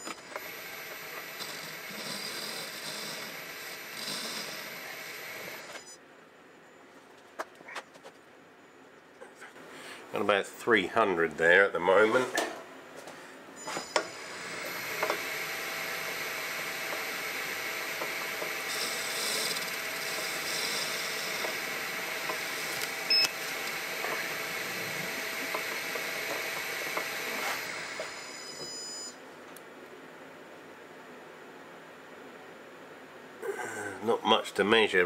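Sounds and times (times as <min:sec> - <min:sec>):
lathe tool cutting hiss: 0:00.0 - 0:05.9, 0:13.9 - 0:28.7
metal lathe humming: 0:00.0 - 0:05.9, 0:13.9 - 0:28.7.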